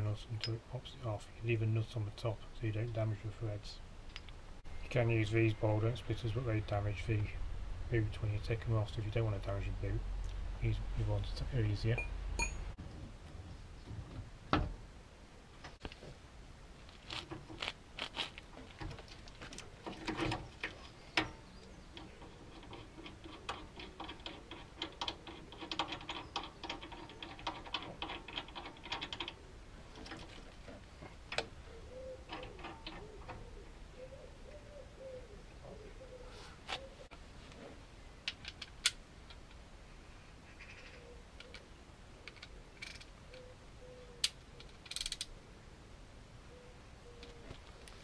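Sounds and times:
hand ratchet clicking: 44.8s - 45.3s.

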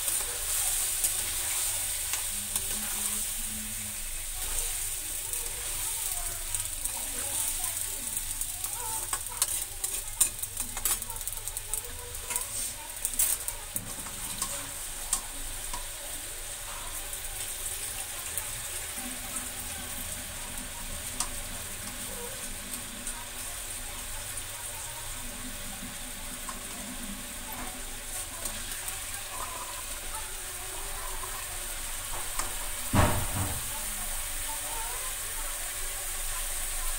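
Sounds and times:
potatoes sizzling in a pan: 0.0s - 36.9s
metal spatula scraping a pan: 0.1s - 3.4s, 8.6s - 15.8s.

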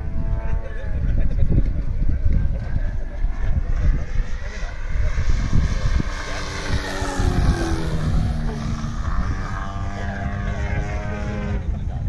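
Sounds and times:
wind rumble on microphone: 0.0s - 12.0s
model plane motor: 3.5s - 10.9s.

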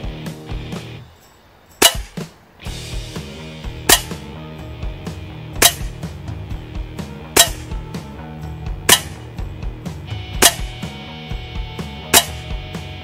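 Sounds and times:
background music: 0.0s - 13.0s
air rifle shots: 1.8s - 2.3s, 3.8s - 4.3s, 5.6s - 6.0s, 7.3s - 7.8s, 8.8s - 9.4s, 10.4s - 10.9s, 12.1s - 12.6s.

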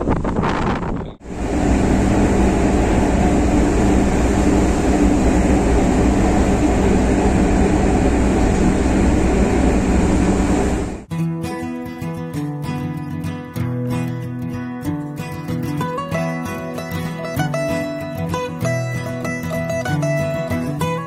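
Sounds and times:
ship machinery hum: 1.1s - 11.1s
churning propeller wake: 1.2s - 11.1s
acoustic guitar music: 11.1s - 21.0s.

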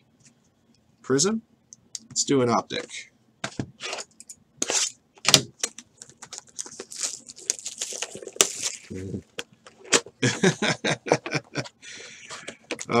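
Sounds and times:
wrap and cardboard crinkling tearing: 6.3s - 9.2s.

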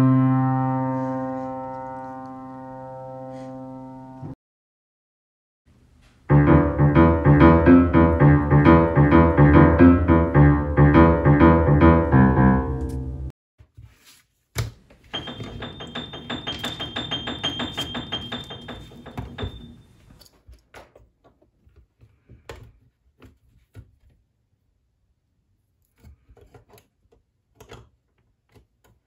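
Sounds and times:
piano-like keyboard music: 0.0s - 4.4s, 6.3s - 13.3s, 15.1s - 20.0s.

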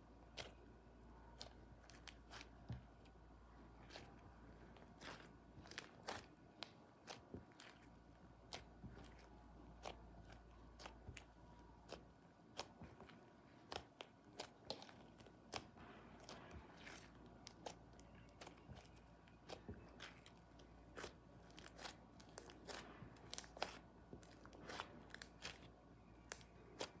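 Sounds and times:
slime popping and crackling: 13.6s - 27.0s.

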